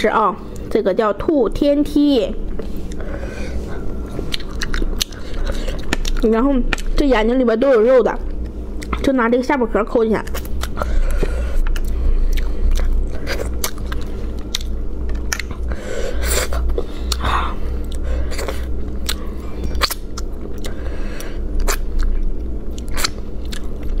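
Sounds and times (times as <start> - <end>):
steady low hum: 0.0 - 24.0
close chewing and biting: 4.1 - 7.0, 10.3 - 24.0.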